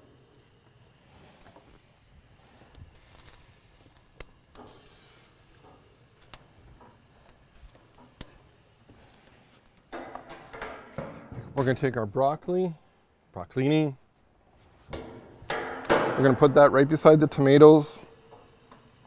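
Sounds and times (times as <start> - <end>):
peppers sizzling on grill: 0.0 - 11.0, 14.8 - 19.0.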